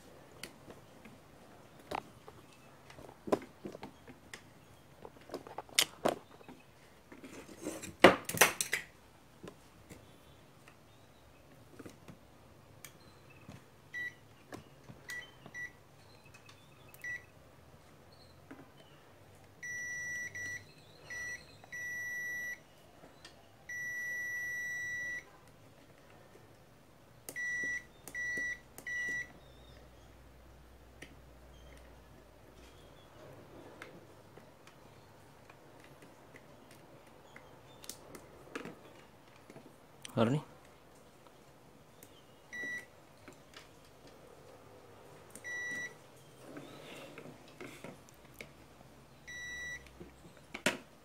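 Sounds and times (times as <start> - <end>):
multimeter continuity beeps: 13.0 - 14.2, 15.1 - 17.3, 19.6 - 22.7, 23.7 - 25.3, 27.3 - 29.6, 42.5 - 42.9, 45.4 - 46.0, 49.3 - 49.9.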